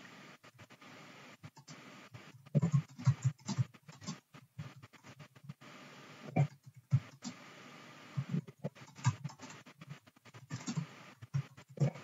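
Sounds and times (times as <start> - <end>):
typing on computer keyboard: 2.4 - 4.2, 6.4 - 7.4, 8.2 - 9.7, 10.4 - 12.0.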